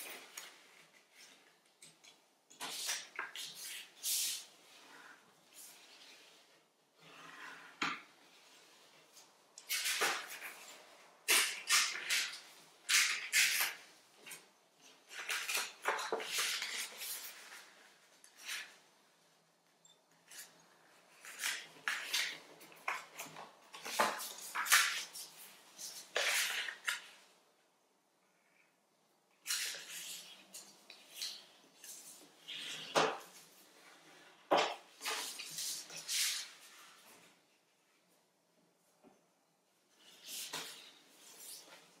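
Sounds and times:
paper being folded and creased: 8.3 - 18.9, 20.2 - 27.4, 29.4 - 34.4.

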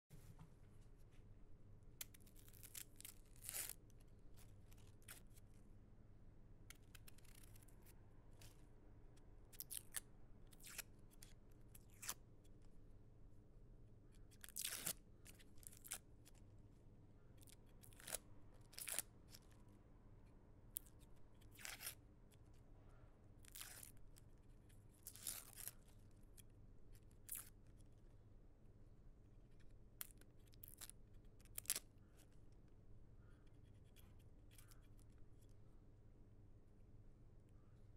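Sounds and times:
faint room hum: 0.1 - 37.9
onion skin crackling and tearing: 2.0 - 5.4, 6.7 - 8.6, 9.5 - 12.2, 14.3 - 16.4, 17.4 - 19.6, 20.7 - 22.5, 23.4 - 24.3, 25.0 - 27.8, 30.0 - 31.9.

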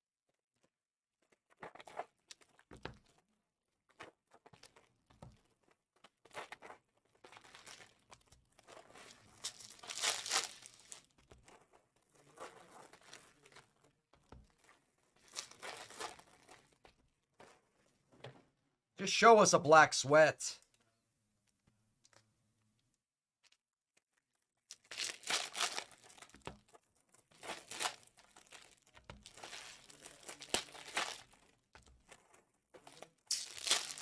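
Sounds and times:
foil wrappers tearing and crinkling: 3.9 - 13.8, 14.5 - 16.9, 24.0 - 34.0.

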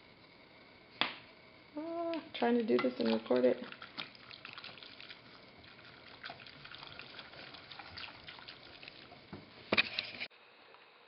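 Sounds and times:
whisk stirring liquid in a pot: 3.0 - 9.2.

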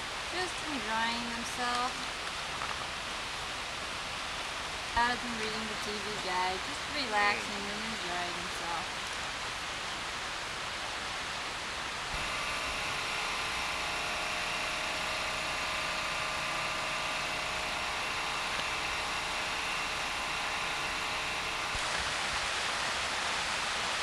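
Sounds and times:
machine-like hum: 0.0 - 24.0
hiss: 10.4 - 24.0
rushing stream water: 21.7 - 24.0.

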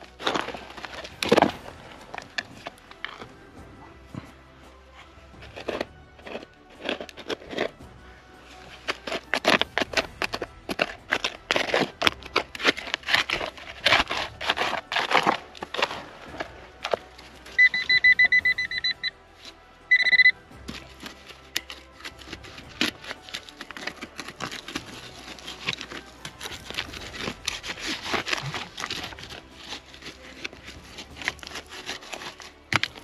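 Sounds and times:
stony soil scraped by hand: 0.0 - 4.3, 4.9 - 18.4, 19.3 - 33.0
metal detector probe beeping: 17.6 - 19.1, 19.9 - 20.4.

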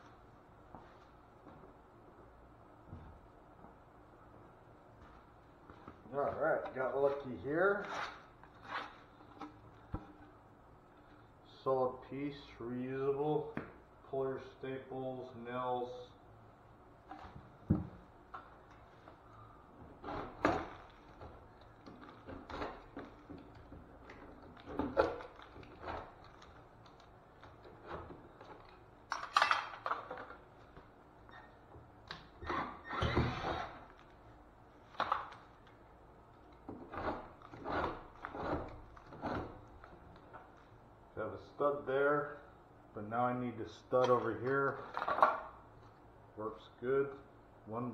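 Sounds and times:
tool scraping: 6.3 - 10.3, 19.8 - 26.6, 36.7 - 40.0.

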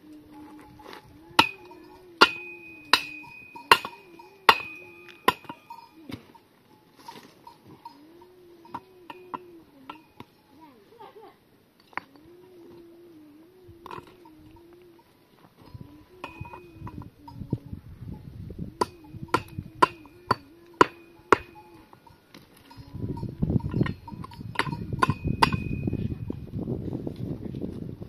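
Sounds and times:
sharp metallic knocks: 1.3 - 6.3, 8.7 - 10.3, 18.8 - 26.0.

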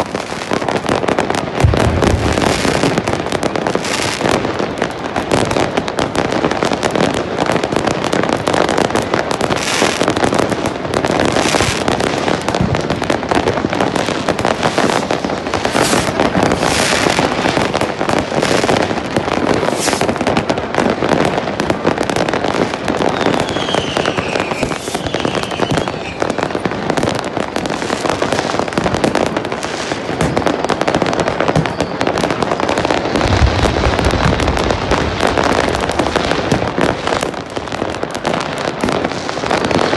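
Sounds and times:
falling firework whistles: 0.0 - 4.6, 14.0 - 17.6, 18.4 - 20.4, 22.6 - 28.7, 31.2 - 37.3
fireworks crackling and banging: 0.0 - 39.9
fireworks rushing bursts: 0.0 - 39.9
deep thump: 1.6 - 3.2.

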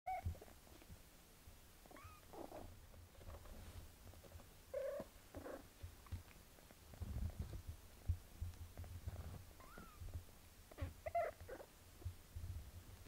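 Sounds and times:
cats purring: 1.7 - 13.0
cat squeaking: 1.9 - 2.6, 9.6 - 10.0, 10.7 - 11.7.

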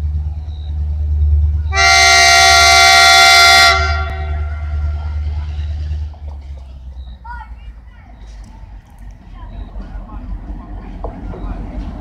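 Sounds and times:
locomotive air horn blast: 1.7 - 5.2.

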